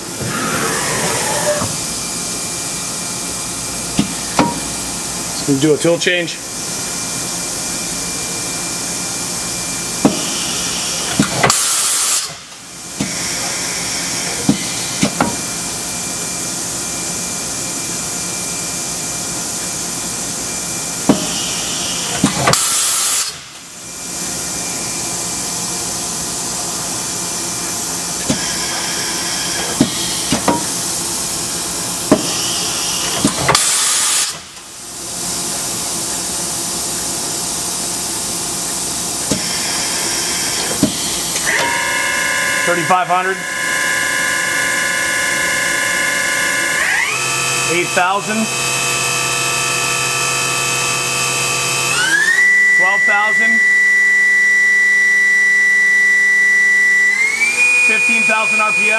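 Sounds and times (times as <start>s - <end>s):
machining center running: 34.7s - 54.0s, 55.2s - 58.9s.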